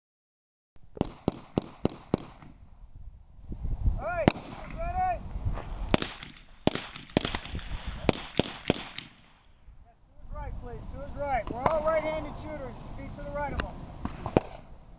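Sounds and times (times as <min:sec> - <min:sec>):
handgun shots: 0:06.0 - 0:09.3.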